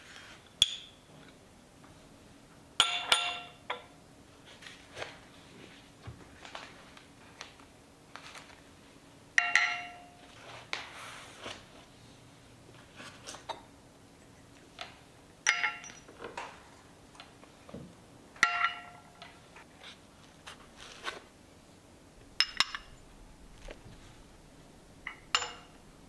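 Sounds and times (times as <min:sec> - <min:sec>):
porcelain tea cups clinking: 0:15.5 - 0:16.1, 0:22.4 - 0:23.1, 0:25.0 - 0:25.9.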